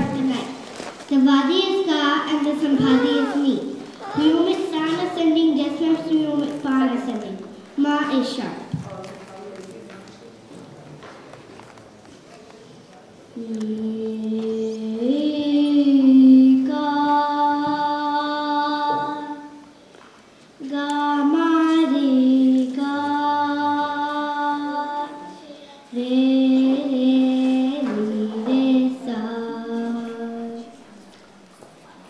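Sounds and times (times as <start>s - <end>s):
girl singing into a microphone: 0.0s - 8.7s, 13.4s - 19.8s, 20.6s - 30.9s.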